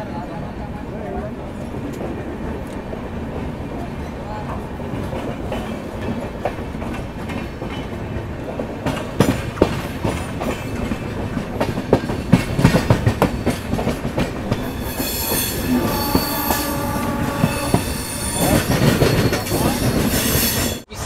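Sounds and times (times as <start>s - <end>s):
train wheels clattering over joints: 4.9s - 20.9s
high wheel squeal: 14.6s - 21.0s.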